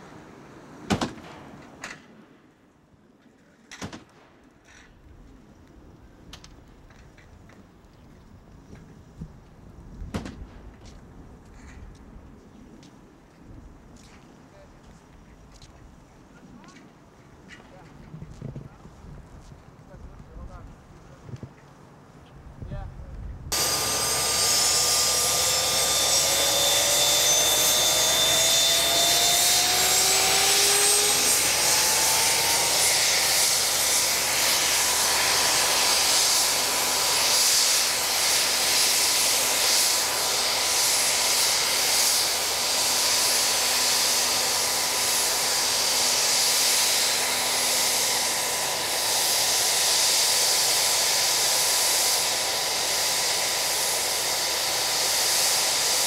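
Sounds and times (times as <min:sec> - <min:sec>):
helicopter turbine whine: 0:23.5 - 0:56.0.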